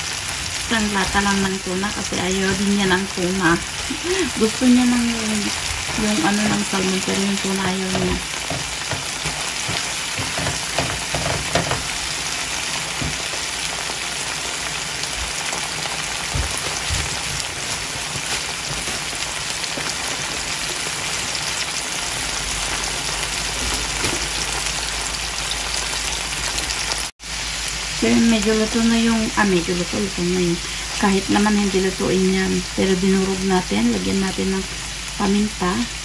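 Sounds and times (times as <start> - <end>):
food sizzling in a pan: 0.0 - 36.0
soft knocks: 8.0 - 11.9.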